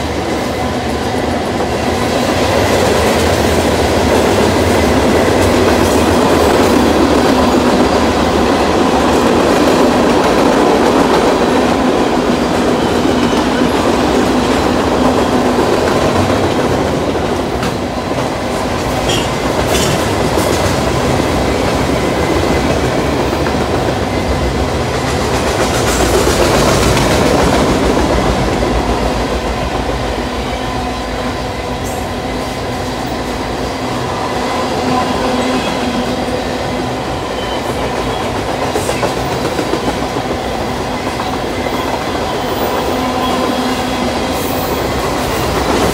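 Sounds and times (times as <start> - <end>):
freight train rumbling past: 0.0 - 45.9
wheels clickety-clack over rails: 1.5 - 29.9, 37.4 - 43.6, 44.4 - 45.9.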